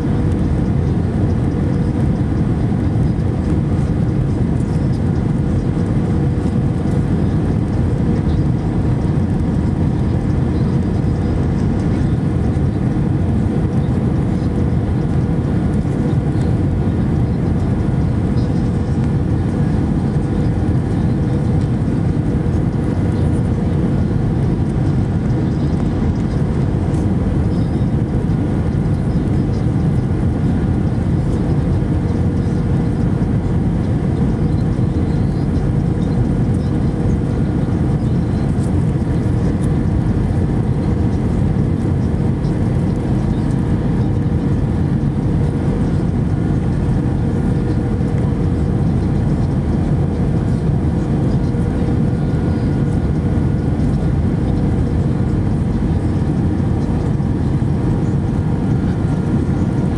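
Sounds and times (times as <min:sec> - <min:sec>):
airliner cabin rumble: 0:00.0 - 0:59.9
faint steady hum: 0:00.0 - 0:59.9.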